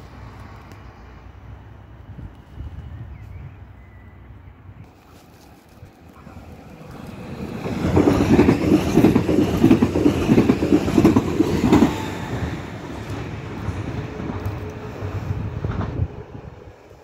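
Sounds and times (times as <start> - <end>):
electric train passing: 5.7 - 17.0
train wheels clattering: 7.0 - 14.9.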